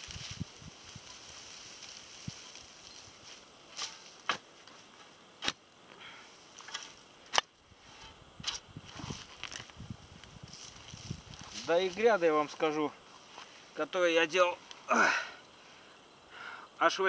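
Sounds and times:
weeds rustling and tearing: 0.0 - 5.2, 7.8 - 13.8.

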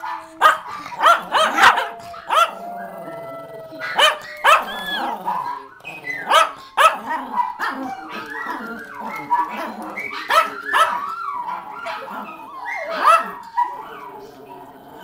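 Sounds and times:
small dogs barking sharply: 0.0 - 2.6, 3.8 - 8.4, 9.0 - 12.2, 12.8 - 13.8
long steady howl: 0.2 - 6.2.

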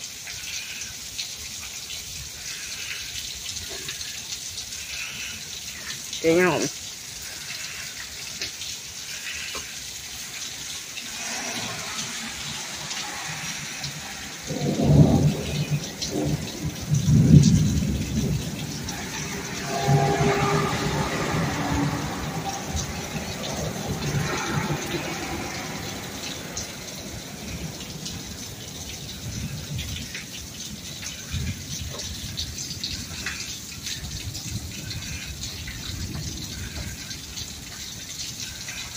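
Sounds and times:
close drips and splashes: 0.0 - 38.9
steady rain falling: 0.0 - 38.9
rolling thunder: 12.5 - 30.1.

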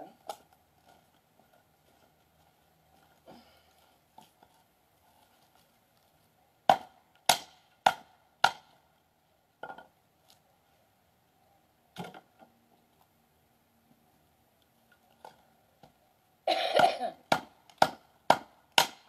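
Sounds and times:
axe chopping wood: 6.7 - 8.8, 17.3 - 19.0.

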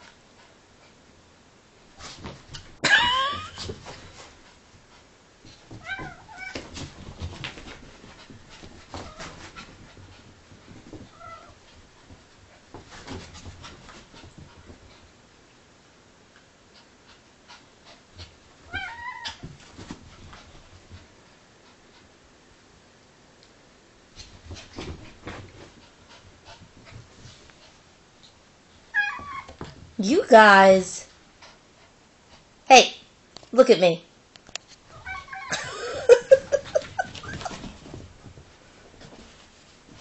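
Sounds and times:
animals scuffling and knocking: 2.0 - 15.0, 34.7 - 40.0.

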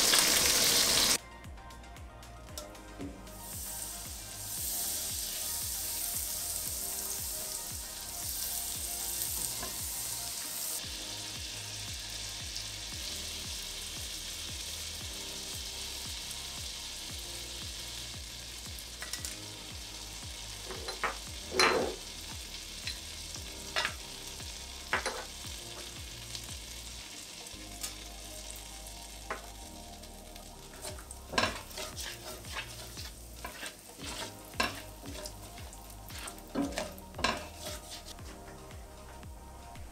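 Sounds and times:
butter and oil sizzling: 0.0 - 1.2, 2.6 - 39.9
spatula scraping pot: 30.9 - 35.3, 36.1 - 38.2.

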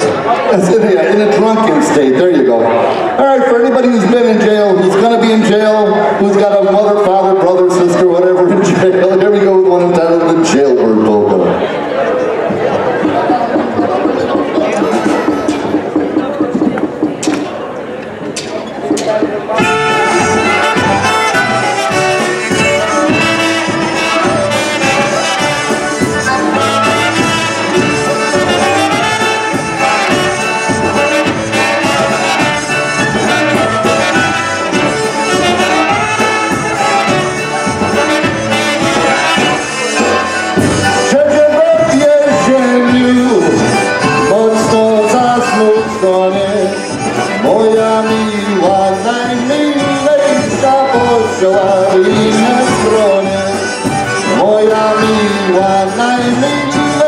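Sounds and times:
polka band playing: 0.0 - 17.7, 18.4 - 57.0
man singing: 19.6 - 57.0.

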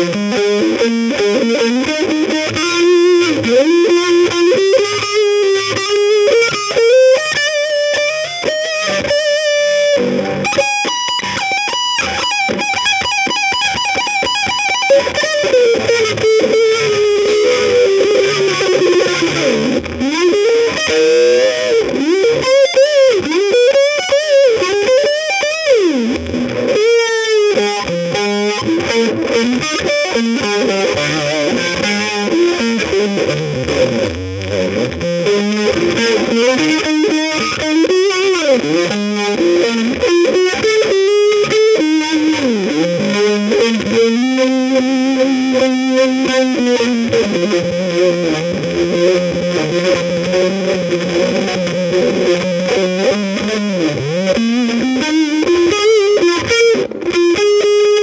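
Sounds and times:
distorted electric guitar melody: 0.0 - 58.0.

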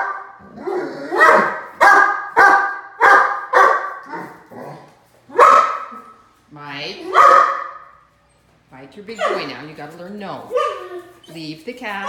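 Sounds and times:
puppy barking: 0.0 - 6.2, 7.0 - 8.1, 9.1 - 9.7, 10.4 - 12.0.

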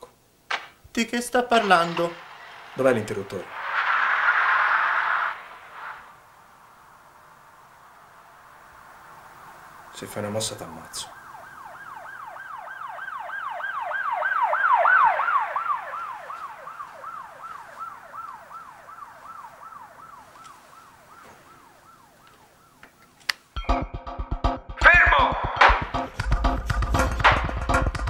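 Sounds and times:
emergency vehicle siren yelping: 1.5 - 10.0, 10.6 - 23.1.

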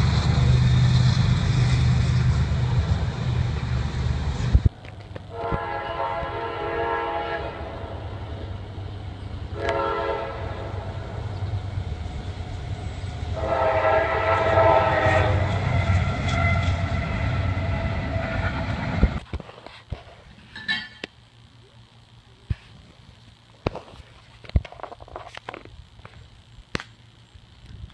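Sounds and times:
train rumbling: 0.0 - 21.4
locomotive air horn blasts: 5.3 - 8.0, 9.5 - 11.2, 13.3 - 18.6.

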